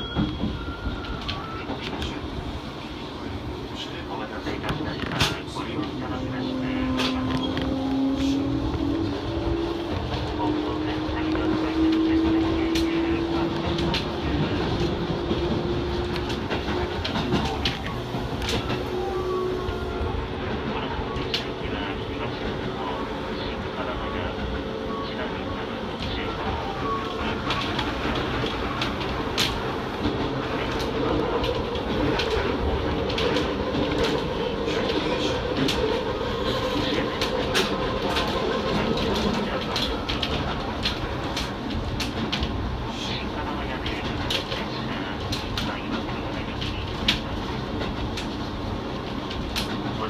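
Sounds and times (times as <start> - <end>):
train wheels rumbling on rails: 0.0 - 50.0.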